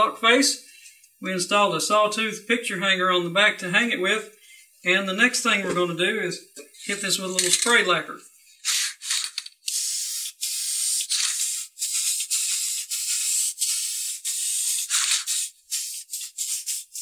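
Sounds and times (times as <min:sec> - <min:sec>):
aerosol can hissing: 0:08.6 - 0:17.0.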